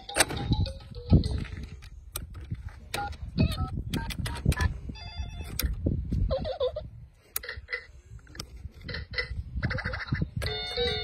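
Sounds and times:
electronic toy beeps and tones: 8.9s - 11.0s.

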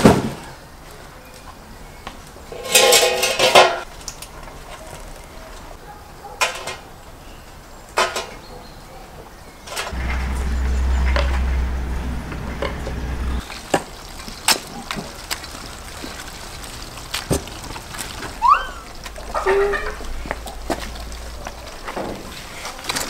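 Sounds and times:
high rising squeak: 9.9s - 13.4s
low rumble: 9.9s - 13.5s
crayfish shells clicking in basin: 13.5s - 18.4s.

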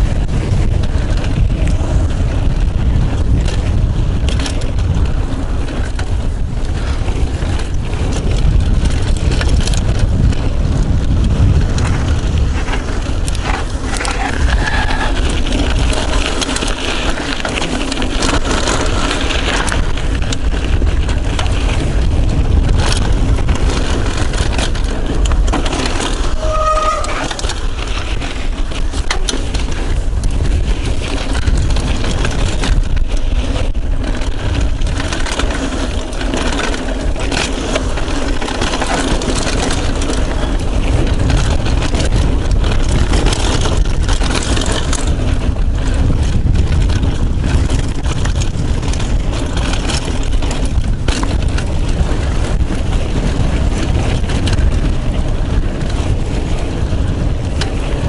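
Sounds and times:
bike clattering and rattling: 0.0s - 58.0s
tyres on dirt: 0.0s - 58.0s
wind rush on microphone: 0.0s - 58.0s
short squeak: 26.3s - 27.4s.

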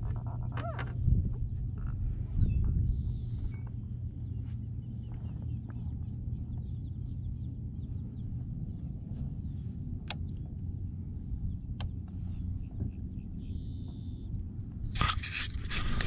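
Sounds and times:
steady low rumble: 0.0s - 16.0s
faint bird chirps: 2.3s - 8.4s, 12.0s - 14.4s.

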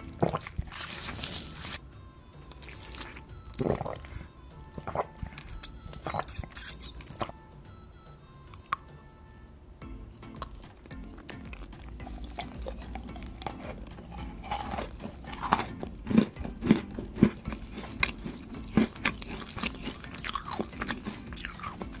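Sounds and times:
wet mouth chewing: 0.0s - 1.8s, 2.5s - 7.3s, 10.3s - 22.0s
crunchy bites: 10.4s - 22.0s.

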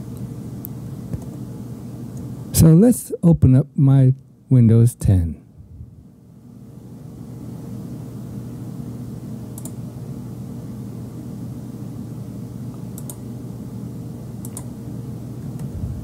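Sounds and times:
steady low hum: 0.0s - 16.0s
computer mouse clicking: 9.5s - 9.8s, 12.8s - 13.2s, 14.4s - 14.7s.

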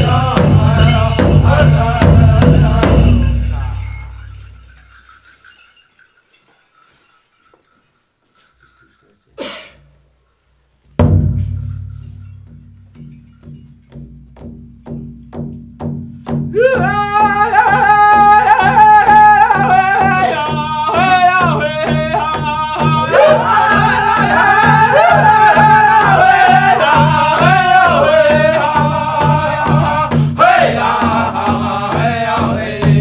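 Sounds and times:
high-pitched group singing: 0.0s - 4.2s, 16.6s - 33.0s
large drum beating: 0.0s - 4.6s, 11.0s - 33.0s.

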